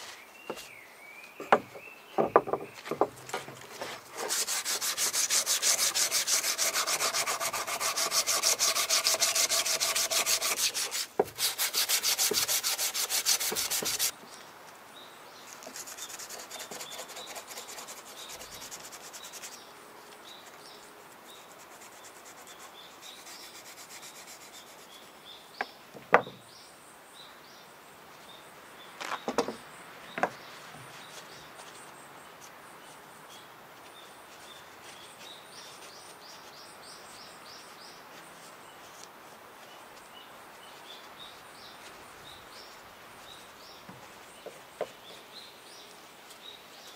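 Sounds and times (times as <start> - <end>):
birds chirping faintly: 0.0 - 46.9
rubbing metal pruning shears: 3.8 - 14.1.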